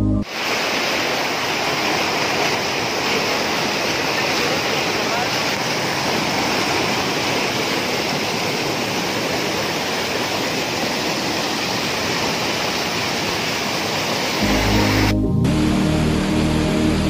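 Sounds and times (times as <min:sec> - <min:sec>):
music: 0:00.0 - 0:00.2, 0:14.4 - 0:17.0
waterfall rushing: 0:00.2 - 0:15.2.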